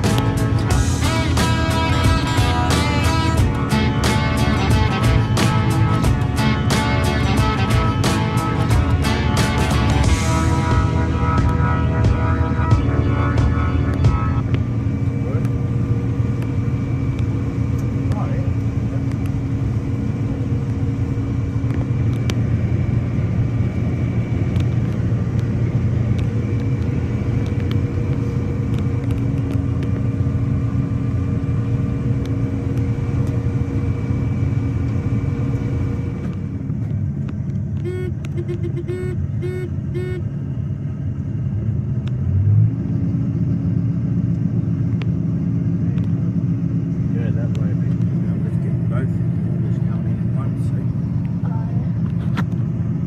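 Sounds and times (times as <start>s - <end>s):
combine harvester machinery drone: 0.0s - 53.0s
short beeps: 37.8s - 40.2s.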